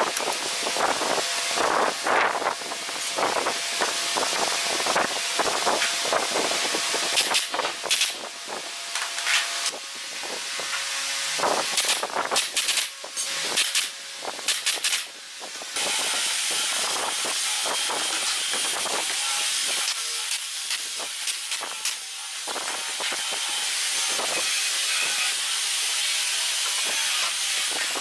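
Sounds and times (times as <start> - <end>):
pneumatic nailer shots: 0.1 - 28.0.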